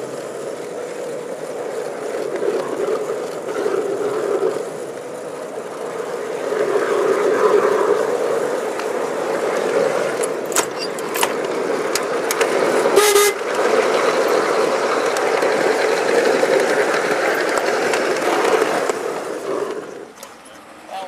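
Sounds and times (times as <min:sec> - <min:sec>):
wheels rumbling on rail: 0:00.0 - 0:21.0
sharp clicks of track: 0:08.7 - 0:20.7
locomotive horn toot: 0:12.9 - 0:13.6.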